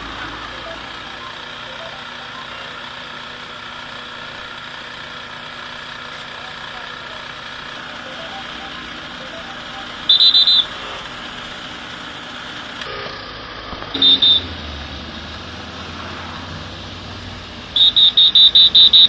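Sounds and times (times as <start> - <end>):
engine running: 0.0 - 19.0
high-pitched electronic beeps: 0.5 - 2.7, 7.8 - 10.8.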